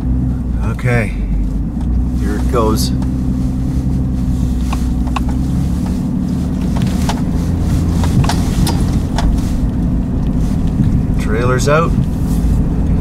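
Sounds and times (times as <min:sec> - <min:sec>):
vehicle engine running under load: 0:00.0 - 0:13.0
sharp clicks and knocks: 0:04.7 - 0:06.0, 0:06.6 - 0:07.3, 0:08.0 - 0:11.0.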